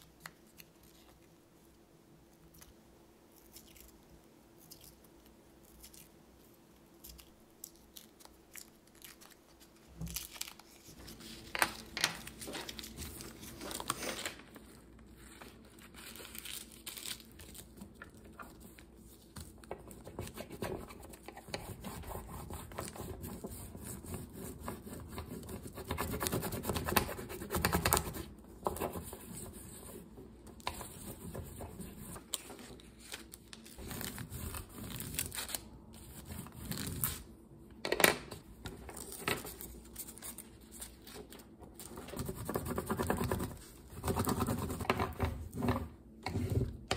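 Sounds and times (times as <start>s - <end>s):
paper wrapper tearing: 7.7s - 11.1s, 11.7s - 17.8s, 32.3s - 35.7s.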